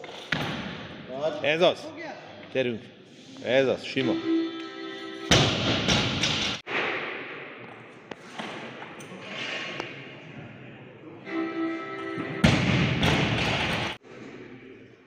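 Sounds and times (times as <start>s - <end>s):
music: 11.3s - 12.8s.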